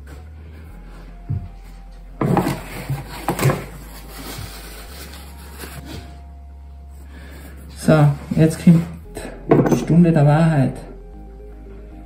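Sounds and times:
objects rubbing: 0:01.7 - 0:06.3
hard objects knocking: 0:02.2 - 0:03.8, 0:09.5 - 0:10.0.

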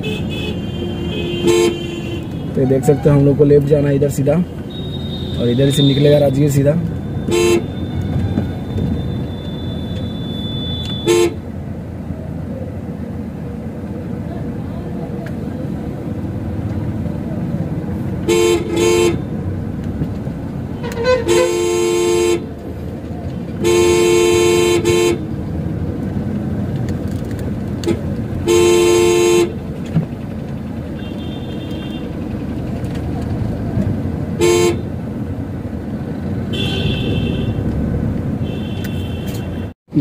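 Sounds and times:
car horn honking: 0:00.0 - 0:03.3, 0:04.4 - 0:11.4, 0:18.2 - 0:19.4, 0:20.7 - 0:22.5, 0:23.6 - 0:25.3, 0:27.8 - 0:29.6, 0:31.0 - 0:32.2, 0:34.3 - 0:35.0, 0:36.5 - 0:37.6, 0:38.4 - 0:39.8
car engine humming: 0:00.0 - 0:40.0
road noise: 0:00.0 - 0:40.0
higher-pitched horn: 0:20.8 - 0:22.4.

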